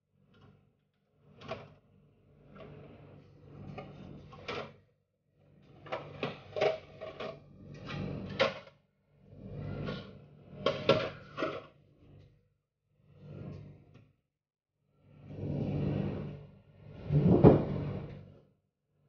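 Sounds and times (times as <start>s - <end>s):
kitchen items knocking and bumping: 10.6s - 11.7s, 17.1s - 17.8s.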